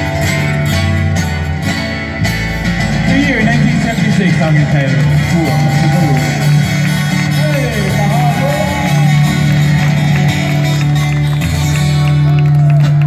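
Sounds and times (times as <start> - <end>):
acoustic guitars: 0.0 - 13.0
bass line: 0.0 - 13.0
person singing: 7.3 - 9.8.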